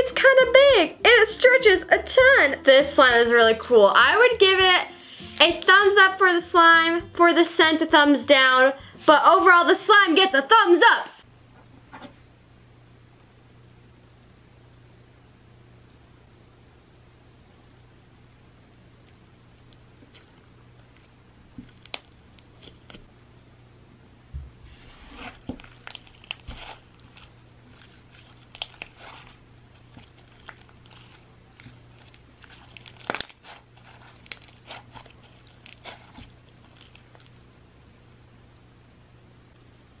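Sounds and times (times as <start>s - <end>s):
crunchy slime crackling and popping: 4.0s - 5.8s, 19.6s - 23.0s, 25.4s - 37.4s.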